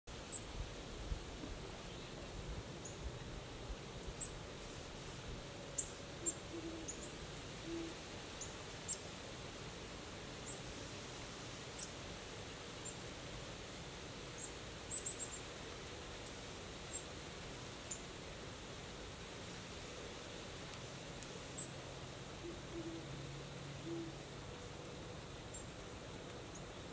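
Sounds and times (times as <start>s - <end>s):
faint outdoor hiss: 0.1s - 26.9s
owl hooting: 6.2s - 8.0s, 22.4s - 24.2s.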